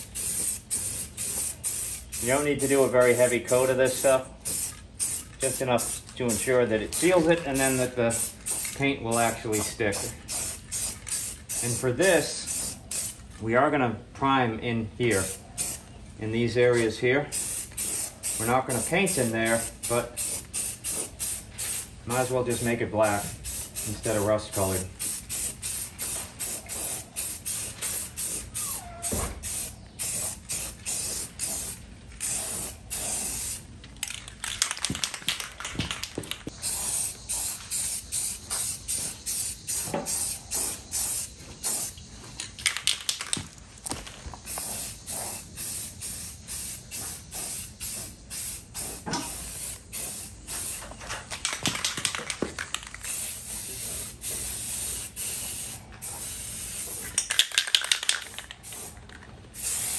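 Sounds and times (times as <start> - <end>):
aerosol spray can hissing: 0.0 - 3.6, 4.4 - 6.1, 6.9 - 11.8, 12.4 - 13.2, 17.3 - 33.6, 36.4 - 42.1, 44.3 - 50.9, 51.5 - 59.0, 59.6 - 59.9.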